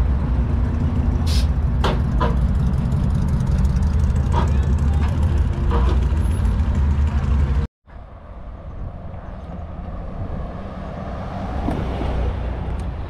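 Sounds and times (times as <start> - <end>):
engine deep rumble: 0.0 - 13.0
hiss of passing traffic: 1.1 - 1.7, 7.9 - 13.0.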